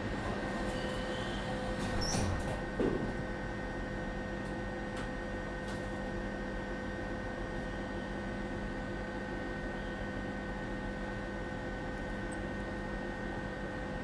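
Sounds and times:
tram interior hum: 0.0 - 3.8.

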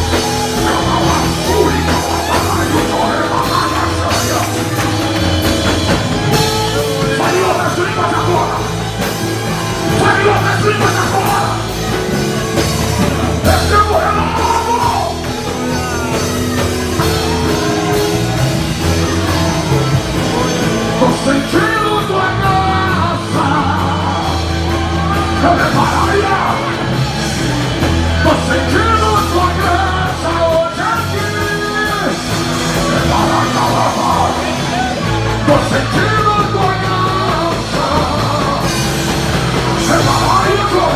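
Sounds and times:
live rock band playing: 0.0 - 40.9
person speaking into a microphone: 32.9 - 34.6.

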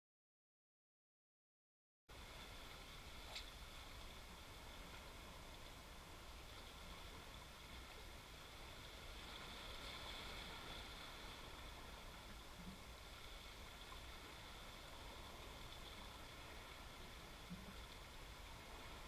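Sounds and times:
faint seashore hiss and rumble: 2.1 - 19.0.

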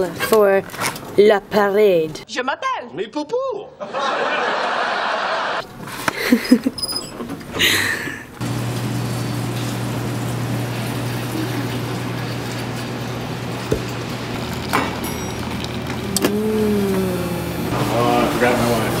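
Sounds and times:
low mechanical hum: 5.6 - 19.0.

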